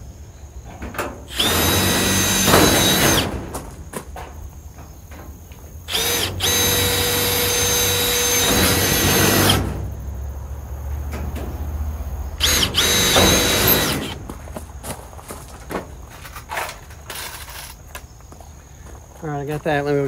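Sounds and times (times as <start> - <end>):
power drill whining: 1.3 - 3.5, 5.9 - 9.8, 12.4 - 14.2.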